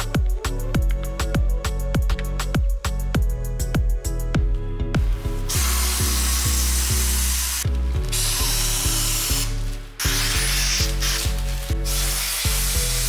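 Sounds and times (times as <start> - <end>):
background music with beat: 0.0 - 13.0
steam cleaner hissing: 5.5 - 13.0.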